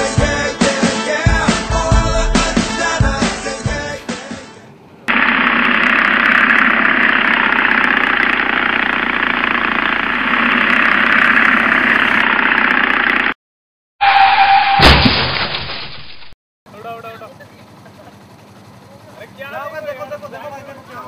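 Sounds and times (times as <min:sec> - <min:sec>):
small motorcycle engine running: 0:05.1 - 0:13.4
loud crash: 0:14.6 - 0:16.2.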